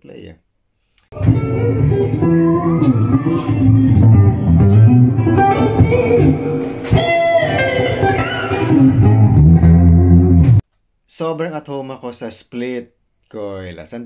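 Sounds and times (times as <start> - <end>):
electric guitar lead lines: 1.1 - 10.6.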